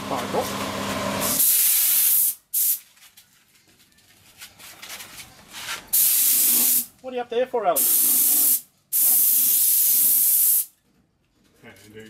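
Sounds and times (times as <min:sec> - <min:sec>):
paint spray gun hissing: 0:01.2 - 0:02.8, 0:05.9 - 0:06.9, 0:07.8 - 0:10.7.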